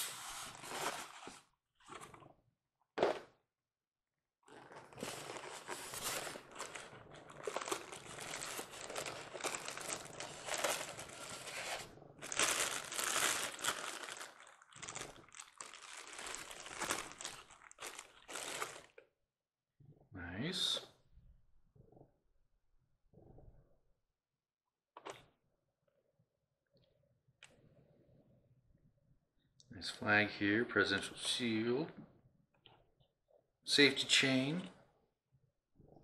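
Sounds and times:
packaging wrap crinkling: 0:04.5 - 0:18.9.

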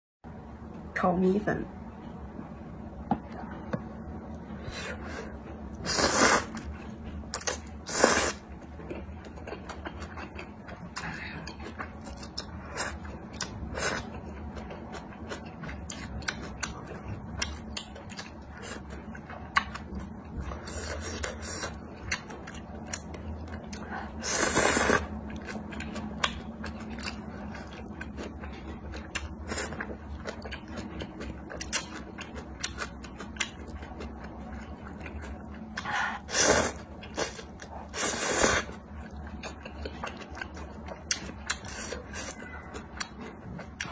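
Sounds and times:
loud noodle slurps: 0:05.8 - 0:06.6, 0:07.9 - 0:08.4
wet chewing: 0:05.8 - 0:43.9.

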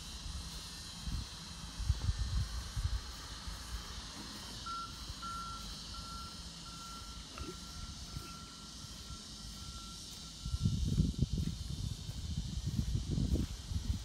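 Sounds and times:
faint short beeps: 0:04.6 - 0:10.9.

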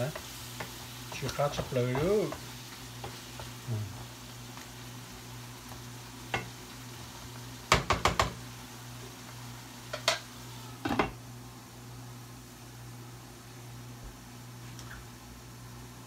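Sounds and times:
wooden spatula knocking on pan: 0:01.5 - 0:03.6, 0:07.7 - 0:08.4.

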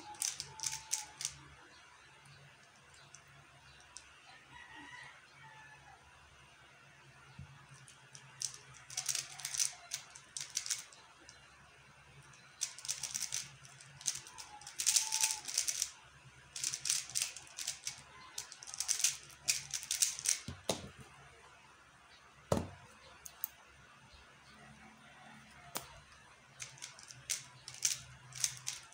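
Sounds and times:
puzzle cube plastic clicking: 0:00.1 - 0:01.4, 0:07.8 - 0:11.4, 0:12.6 - 0:16.0, 0:16.6 - 0:20.9, 0:26.6 - 0:28.9.

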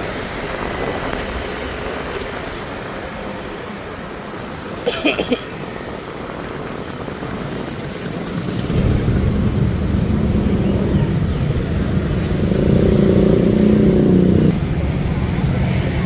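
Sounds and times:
motorcycle engines running: 0:06.4 - 0:16.0.

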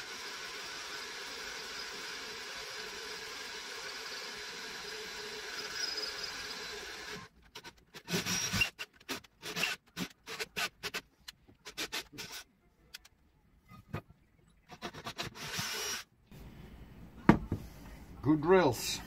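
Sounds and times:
drill boring through metal: 0:00.0 - 0:07.3, 0:08.0 - 0:08.8, 0:14.9 - 0:16.0.

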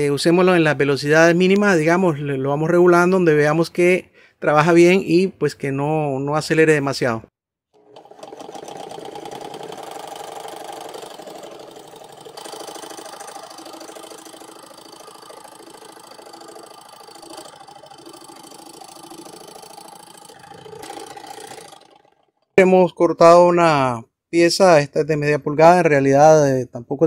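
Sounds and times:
scroll saw cutting wood: 0:07.8 - 0:22.2.

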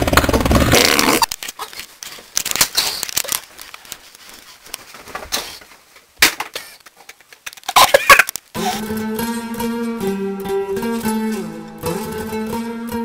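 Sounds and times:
rustling and crinkling: 0:01.2 - 0:08.6.

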